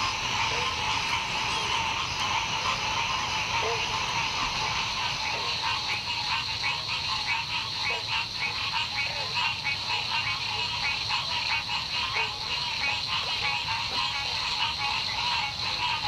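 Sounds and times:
chorus of frogs calling: 0:00.0 - 0:16.0.

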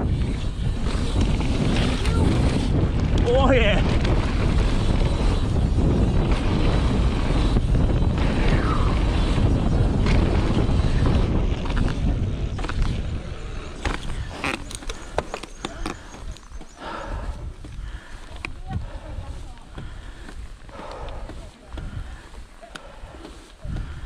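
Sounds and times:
bike tyre rumble: 0:00.0 - 0:24.0
wind on microphone: 0:00.0 - 0:24.0
bike clicks and knocks: 0:00.3 - 0:18.9.

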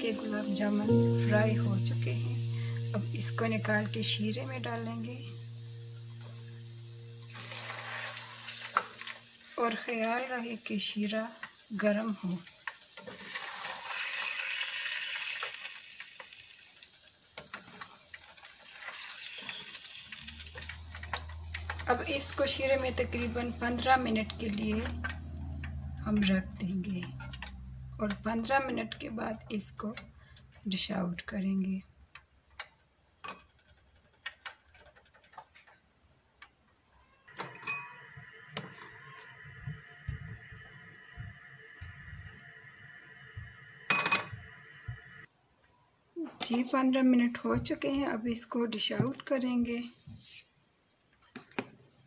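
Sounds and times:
faint steady hum: 0:00.0 - 0:12.5, 0:20.2 - 0:31.8
deep-frying sizzle in oil: 0:00.0 - 0:30.8.

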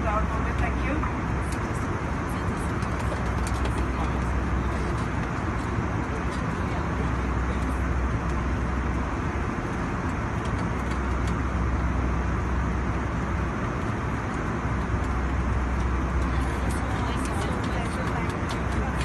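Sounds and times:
airliner cabin drone: 0:00.0 - 0:19.0.

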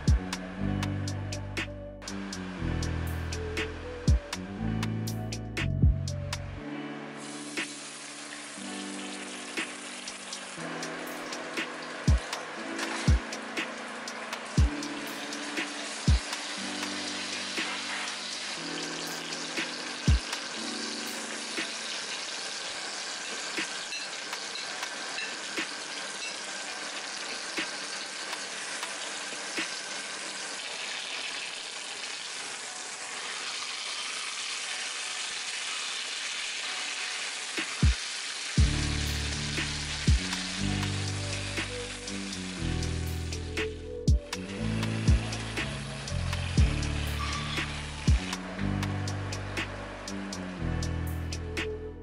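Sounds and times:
soft background music: 0:00.0 - 0:52.0
steak sizzling with pops: 0:07.2 - 0:43.7, 0:44.3 - 0:48.5.

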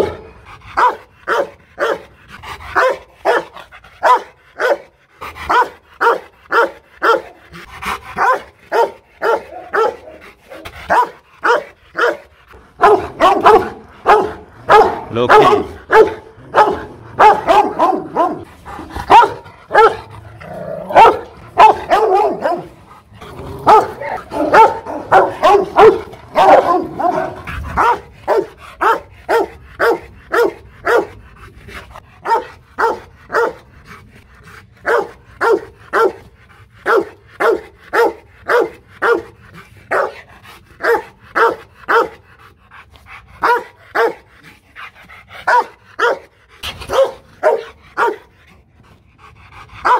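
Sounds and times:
dog barking: 0:00.8 - 0:02.1, 0:02.8 - 0:04.9, 0:05.5 - 0:07.4, 0:08.2 - 0:12.2, 0:12.8 - 0:20.1, 0:20.9 - 0:22.8, 0:23.6 - 0:31.2, 0:32.2 - 0:33.6, 0:34.8 - 0:36.2, 0:36.8 - 0:39.3, 0:39.9 - 0:40.2, 0:40.8 - 0:42.2, 0:43.4 - 0:44.2, 0:45.5 - 0:46.3, 0:46.9 - 0:48.2.

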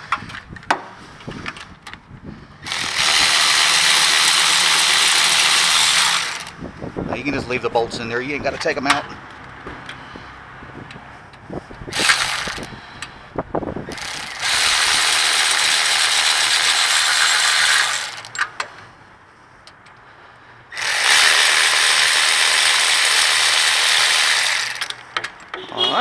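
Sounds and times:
cordless ratchet spinning: 0:02.7 - 0:06.6, 0:11.9 - 0:12.8, 0:13.9 - 0:18.4, 0:20.7 - 0:25.0.

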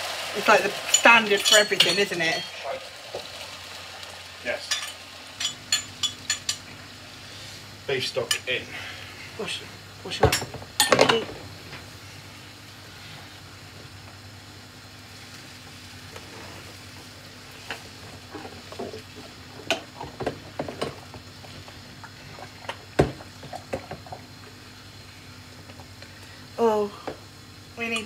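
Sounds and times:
gas hob hissing: 0:00.0 - 0:28.0.

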